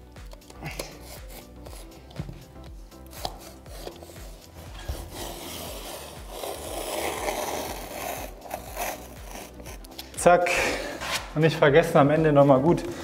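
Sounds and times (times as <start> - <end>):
spatula scraping paper: 3.1 - 9.9.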